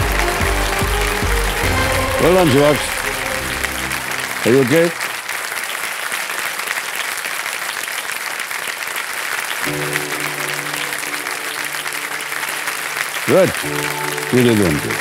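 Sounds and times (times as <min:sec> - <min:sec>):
background music chords: 0:00.0 - 0:05.0, 0:09.6 - 0:15.0
audience applauding: 0:00.0 - 0:15.0.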